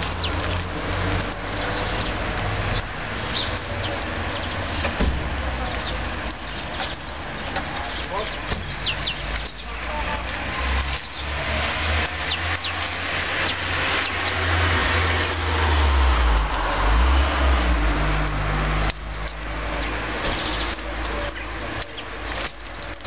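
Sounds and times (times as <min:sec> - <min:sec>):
low rumble of road traffic: 0:00.0 - 0:23.0
small birds chirping: 0:00.0 - 0:23.0.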